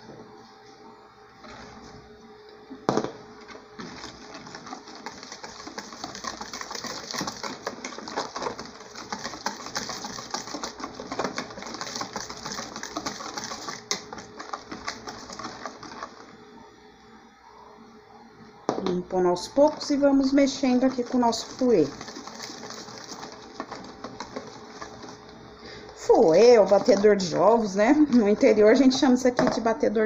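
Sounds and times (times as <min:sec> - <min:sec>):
wire whisk beating batter in bowl: 0:03.8 - 0:16.4, 0:19.6 - 0:25.3, 0:26.0 - 0:29.0.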